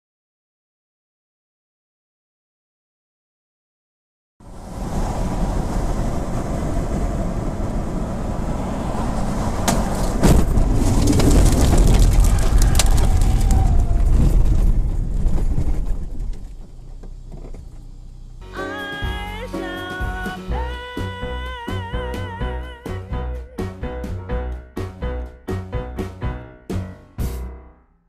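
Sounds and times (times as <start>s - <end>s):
car rumbling over rough ground: 4.4s - 18.4s
road and wind noise in car: 4.4s - 18.4s.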